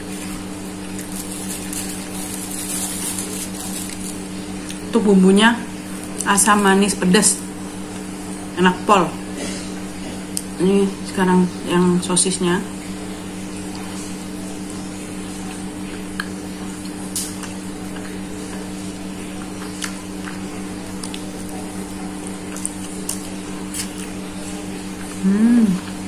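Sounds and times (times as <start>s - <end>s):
low electrical hum: 0.0s - 26.0s
person chewing: 0.9s - 4.9s, 19.4s - 20.4s, 21.0s - 24.2s, 24.9s - 26.0s
wet mouth clicks: 22.5s - 24.1s.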